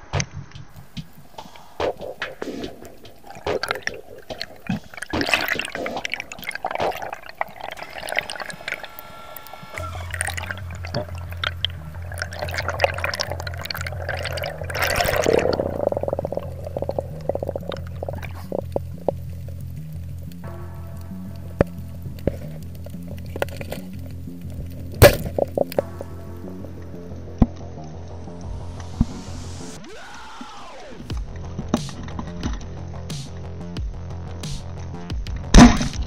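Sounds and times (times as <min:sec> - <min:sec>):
clicks and crackles: 0:00.0 - 0:29.1, 0:31.1 - 0:33.8, 0:34.6 - 0:36.0
music with low bass: 0:00.0 - 0:36.0
underwater water movement: 0:01.1 - 0:29.8.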